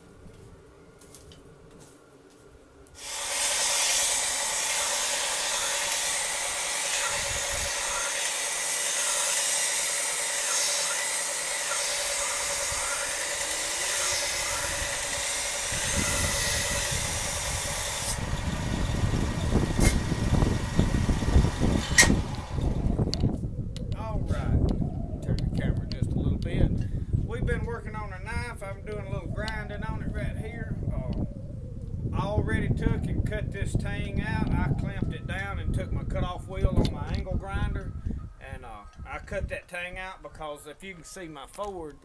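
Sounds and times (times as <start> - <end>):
belt sander grinding metal: 3.0 - 23.1
wind rumble on microphone: 7.1 - 8.0, 14.1 - 40.0
sharp click: 21.8 - 22.3.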